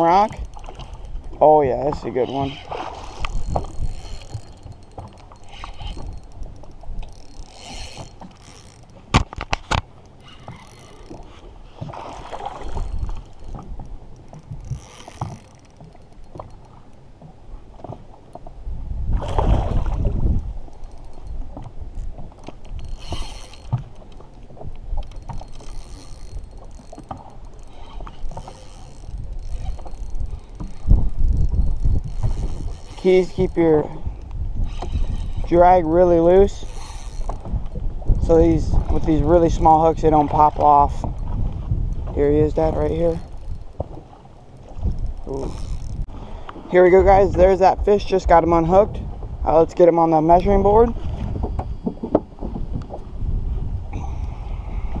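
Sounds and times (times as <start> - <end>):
small waves lapping boat: 0.0 - 55.0
wind buffeting microphone: 0.0 - 55.0
faint knocks and clicks: 3.2 - 18.5, 20.7 - 33.6, 40.6 - 46.6.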